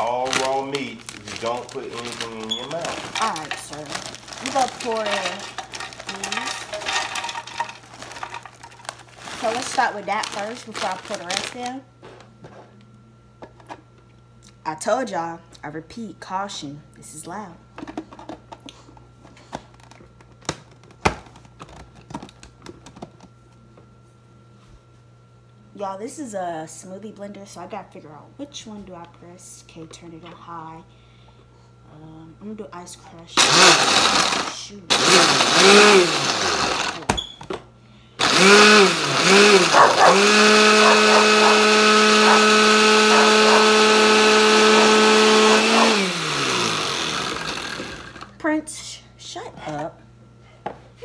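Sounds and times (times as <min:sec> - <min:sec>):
blender motor grinding: 0:00.0 - 0:11.7, 0:33.4 - 0:37.1, 0:38.2 - 0:48.4
blender motor winding down: 0:01.3 - 0:11.6, 0:33.4 - 0:37.1, 0:38.2 - 0:48.3.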